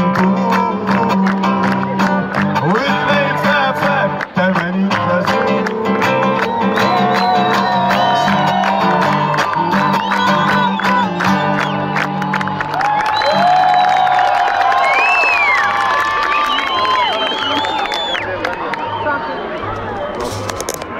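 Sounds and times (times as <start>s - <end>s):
crowd voices and cheers: 5.5s - 20.9s.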